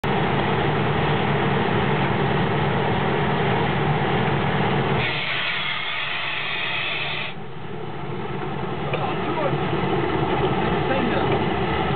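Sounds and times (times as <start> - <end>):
diesel locomotive engine running: 0.0 - 11.9
air hissing: 5.0 - 7.4.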